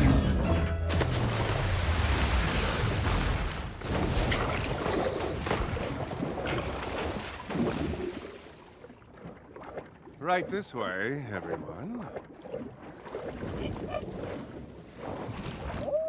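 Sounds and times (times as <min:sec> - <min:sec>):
loud whoosh of water: 0:00.9 - 0:08.6
divers splashing into water: 0:00.9 - 0:10.6
underwater bubbling rush: 0:01.0 - 0:16.0.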